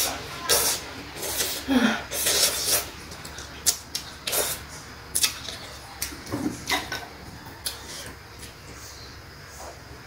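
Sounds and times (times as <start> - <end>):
slurping noodles: 0.0 - 4.6
wet chewing clicks: 2.2 - 7.0.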